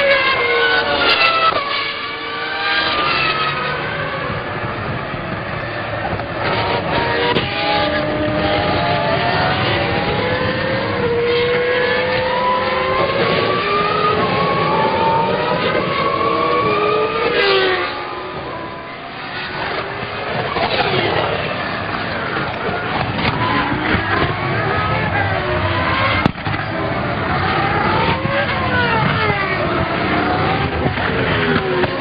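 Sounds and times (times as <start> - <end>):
racing car engine at high revs: 0.0 - 32.0.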